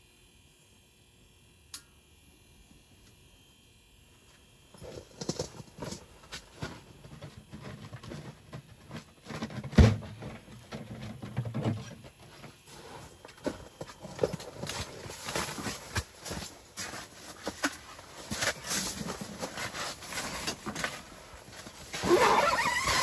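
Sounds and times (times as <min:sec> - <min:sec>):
footsteps crunching on snow: 0:04.3 - 0:09.2, 0:12.2 - 0:23.0.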